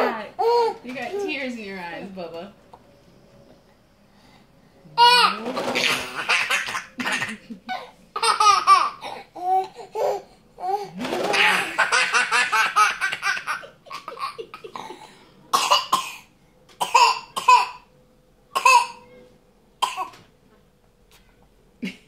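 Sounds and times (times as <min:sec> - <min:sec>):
baby laughing: 0:05.0 - 0:15.0.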